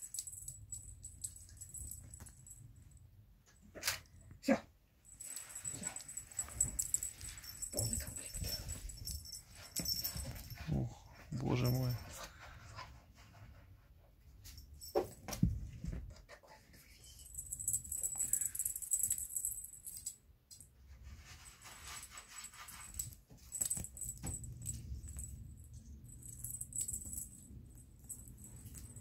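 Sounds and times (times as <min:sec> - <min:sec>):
beaded chain jangling and clicking: 0:00.0 - 0:02.7, 0:05.1 - 0:10.6, 0:17.2 - 0:20.6, 0:22.0 - 0:29.0.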